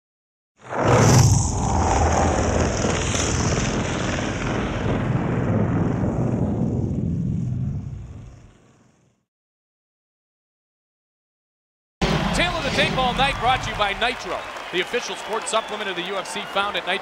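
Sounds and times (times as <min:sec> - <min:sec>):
deep rumbling roar with hiss: 0:00.6 - 0:09.2.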